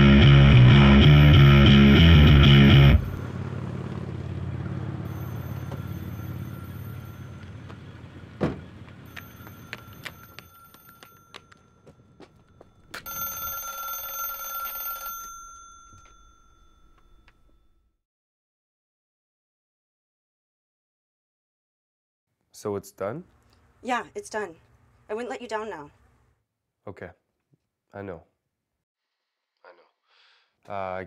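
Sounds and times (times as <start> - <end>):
low engine rumble: 1.6 - 9.7
telephone bell ringing: 5.1 - 7.8, 9.0 - 17.8.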